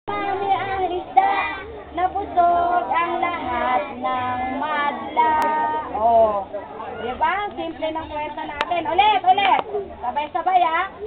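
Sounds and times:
woman singing: 0.1s - 5.9s
children singing in unison: 0.1s - 6.0s.

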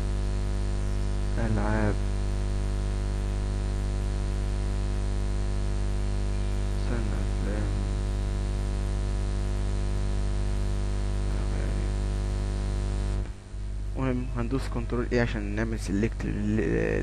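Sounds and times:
electrical mains hum: 0.0s - 17.0s
person mumbling: 15.6s - 17.0s.

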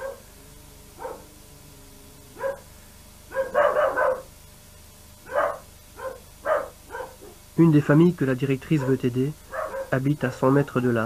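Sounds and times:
dog barking: 0.0s - 0.3s, 1.0s - 1.3s, 2.4s - 2.7s, 3.3s - 4.3s, 5.2s - 7.4s, 8.8s - 10.0s.

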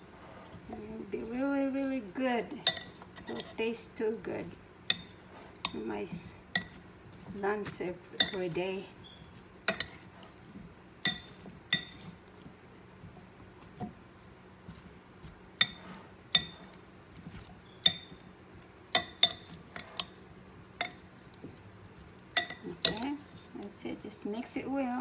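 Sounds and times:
metal spoon clinking on glass bowl: 2.6s - 3.5s, 8.2s - 8.6s, 9.7s - 10.0s, 11.0s - 12.1s, 15.6s - 16.8s, 17.7s - 18.3s, 19.0s - 20.2s, 20.8s - 21.0s, 22.4s - 23.5s.

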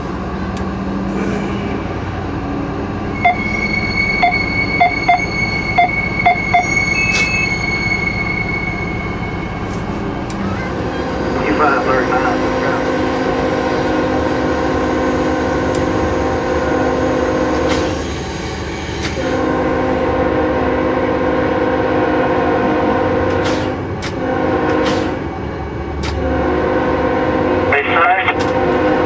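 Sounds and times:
moving locomotive rumble: 0.0s - 29.0s
locomotive air horn blasts: 19.2s - 25.2s, 26.2s - 29.0s.

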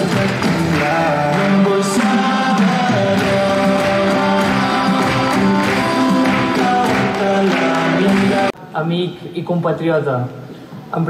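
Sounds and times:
recorded song playing: 0.0s - 8.7s.

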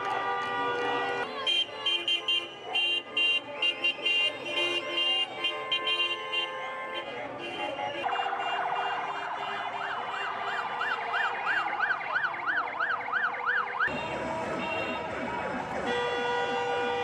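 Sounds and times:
ambulance siren wailing: 7.8s - 17.0s.

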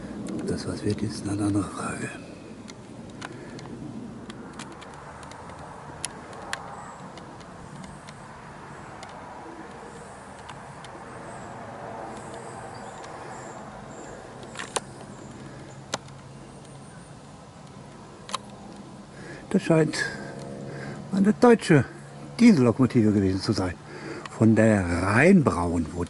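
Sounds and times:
low outdoor rumble: 0.0s - 26.0s
sharp clicks: 2.6s - 16.9s, 17.5s - 19.6s.

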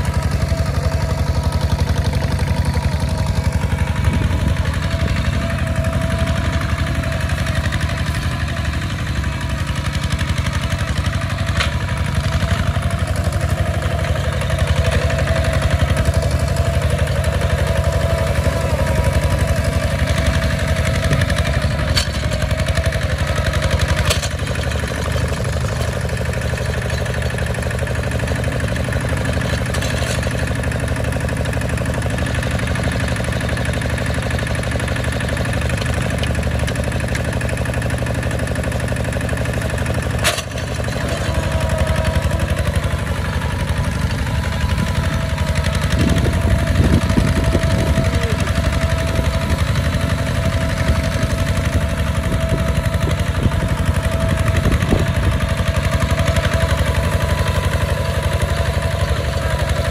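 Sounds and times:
diesel tractor engine chugging: 0.0s - 59.9s.

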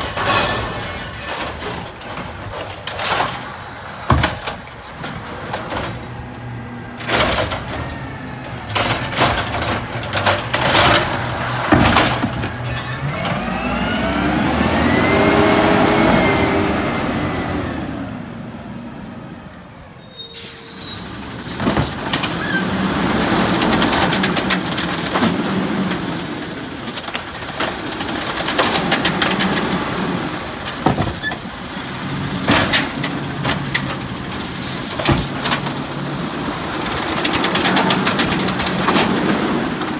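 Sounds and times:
metallic knocks and clanks: 0.0s - 6.1s
garbage truck engine: 0.0s - 39.9s.

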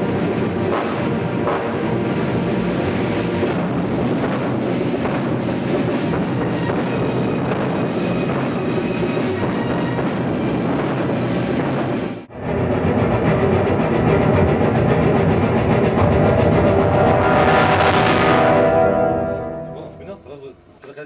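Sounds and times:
orchestra with brass playing: 16.0s - 20.4s.

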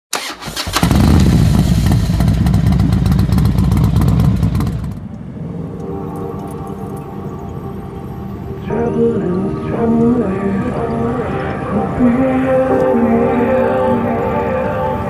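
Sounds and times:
motorcycle engine rumbling: 0.2s - 5.4s.

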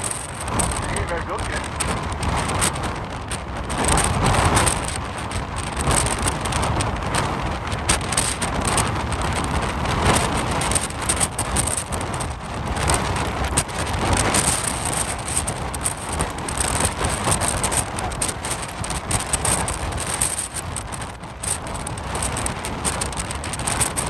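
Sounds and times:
jet engines at take-off: 0.0s - 1.6s.

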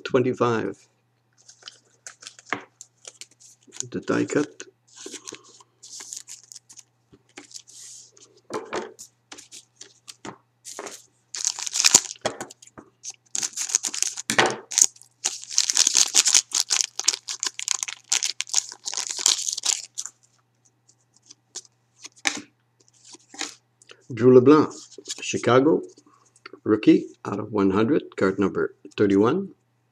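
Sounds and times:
foil wrapper crinkling: 4.9s - 7.7s, 11.4s - 20.2s.

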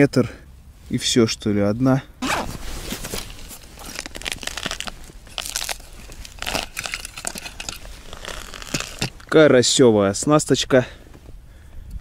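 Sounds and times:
tackle case rustling: 2.2s - 9.5s.

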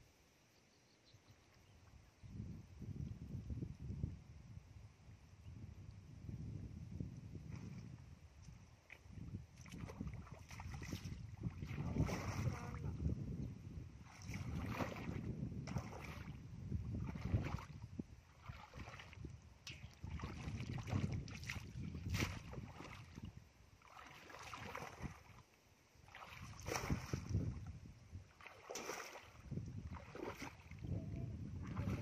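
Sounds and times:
low wind rumble: 2.2s - 23.6s, 26.4s - 28.4s, 29.3s - 32.0s
muddy water splashing: 8.8s - 13.1s, 14.0s - 32.0s
feet wading through mud: 8.9s - 12.8s, 14.0s - 17.8s, 18.4s - 19.3s, 20.0s - 25.4s, 26.0s - 27.5s, 28.3s - 30.8s.

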